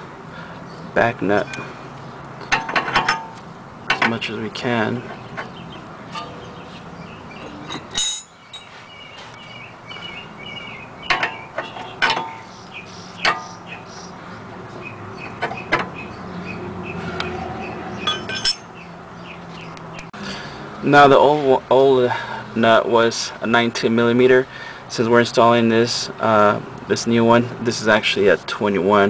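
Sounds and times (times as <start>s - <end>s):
wrench clinking on metal nut: 7.7s - 8.7s, 18.0s - 18.7s.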